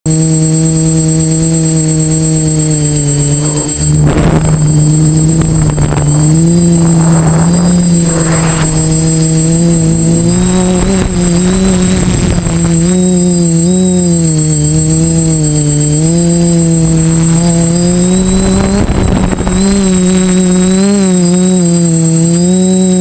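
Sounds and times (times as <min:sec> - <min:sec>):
drone propellers humming: 0:00.1 - 0:23.0
thin high whine: 0:00.1 - 0:23.0
rushing air noise: 0:03.4 - 0:13.0, 0:14.8 - 0:20.8.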